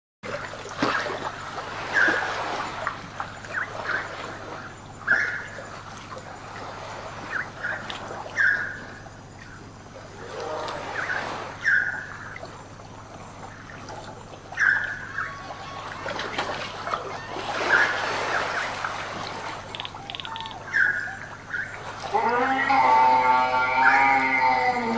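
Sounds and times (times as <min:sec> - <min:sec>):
water trickling: 0:00.2 - 0:24.9
small chirps: 0:19.6 - 0:21.8.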